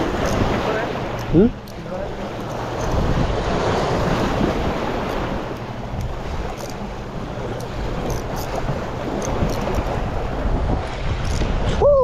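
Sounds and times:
sea waves washing on shore: 0.0s - 12.0s
wind buffeting microphone: 0.0s - 12.0s.

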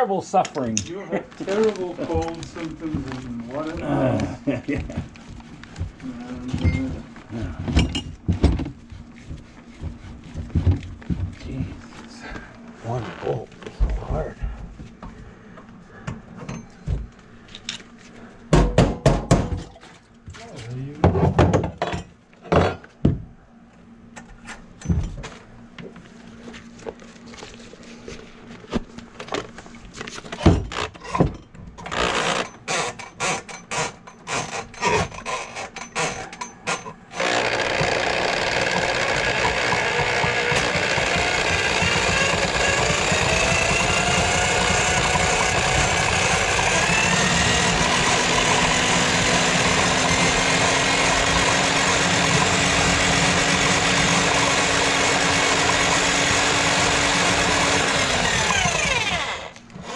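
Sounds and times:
drain snake motor running: 0.6s - 14.3s, 31.8s - 59.9s.

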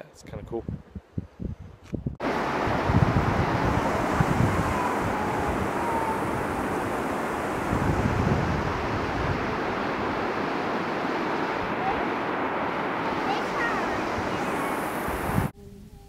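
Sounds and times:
wind buffeting microphone: 0.3s - 15.6s
river rushing over rocks: 2.2s - 15.5s.

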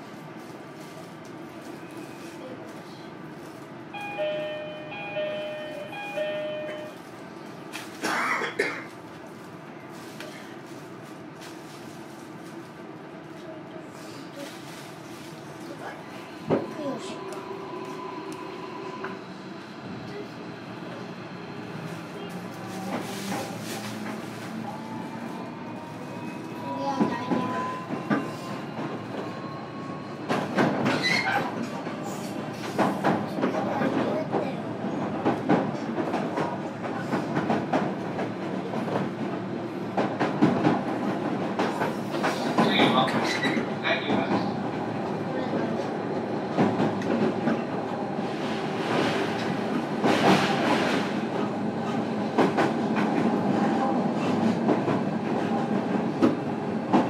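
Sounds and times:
train running noise: 0.0s - 57.0s
electronic two-tone chime: 4.0s - 7.0s.

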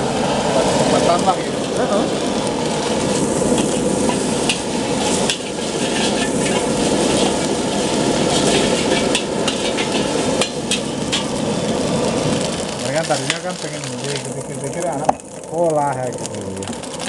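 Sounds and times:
egg sizzling in a wok: 0.0s - 17.0s
metal spatula scraping wok: 3.0s - 11.4s.

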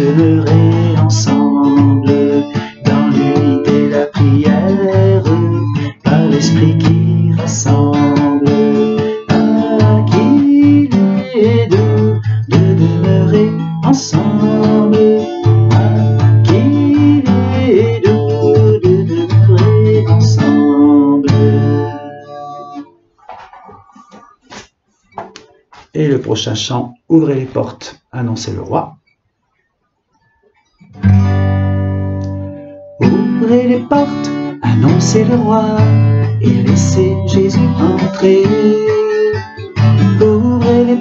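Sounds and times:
man singing: 0.0s - 22.9s, 33.0s - 41.0s
acoustic guitar strumming: 0.0s - 25.9s, 30.1s - 41.0s.

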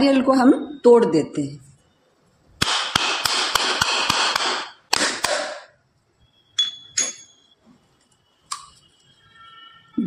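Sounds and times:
coconut being struck: 2.6s - 5.7s.

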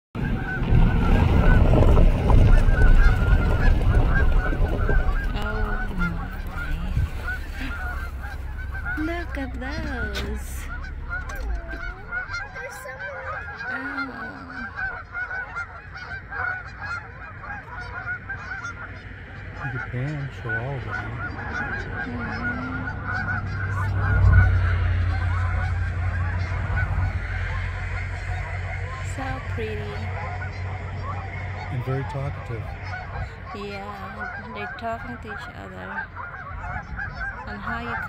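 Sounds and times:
geese honking: 0.2s - 38.0s
low rumble: 0.2s - 38.0s.

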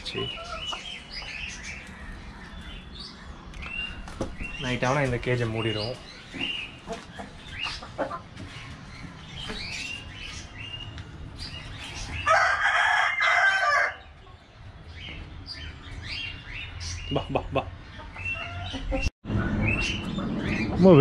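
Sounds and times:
rooster crowing: 12.2s - 14.1s.

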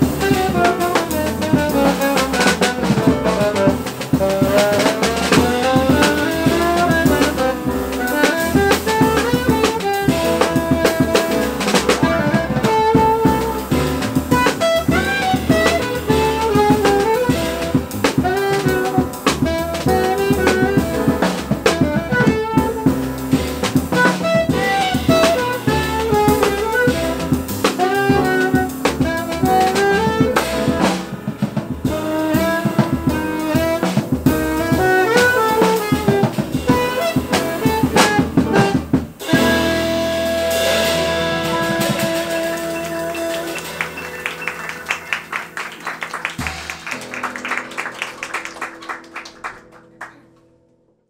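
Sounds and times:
jazz band playing: 0.0s - 50.2s
saxophone lines: 31.9s - 46.0s.

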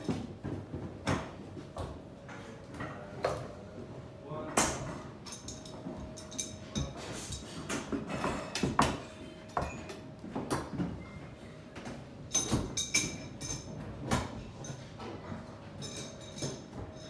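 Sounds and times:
metal tools and pipes knocking: 12.3s - 13.8s, 15.8s - 17.0s.

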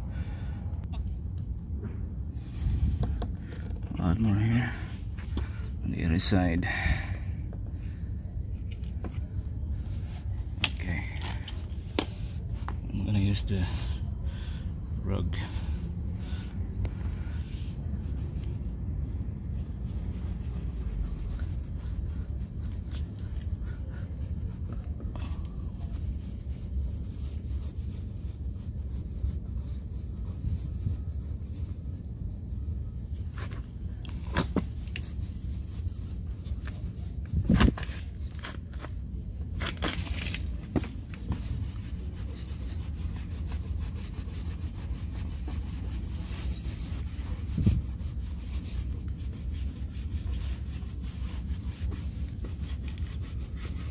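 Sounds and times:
rag rubbing on metal: 34.3s - 53.9s.

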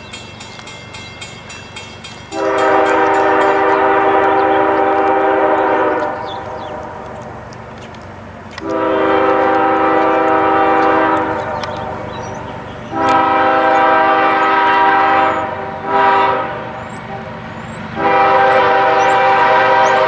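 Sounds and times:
railroad crossing bell ringing: 0.0s - 5.0s, 19.0s - 20.0s
low locomotive rumble: 0.0s - 20.0s
locomotive air horn blasts: 2.3s - 7.0s, 8.6s - 12.0s, 12.9s - 16.8s, 18.0s - 20.0s.

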